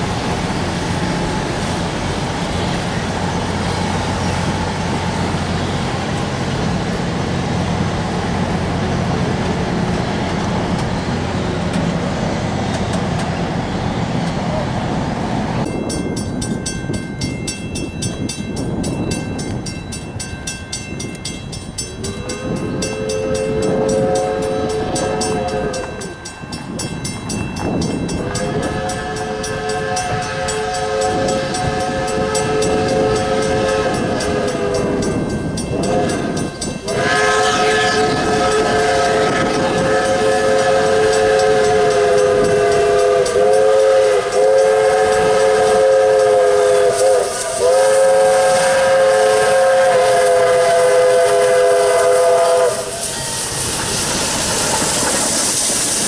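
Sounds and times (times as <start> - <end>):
train rumbling: 0.0 - 56.0
steam locomotive whistle blasts: 22.0 - 26.2, 28.1 - 56.0.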